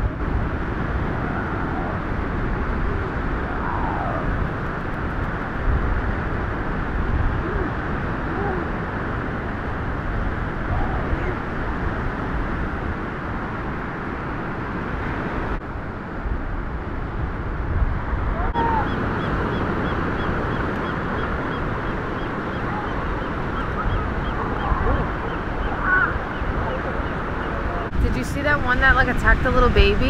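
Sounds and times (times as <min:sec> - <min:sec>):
surf and wind: 0:00.0 - 0:30.0
sea lions barking: 0:18.5 - 0:27.9.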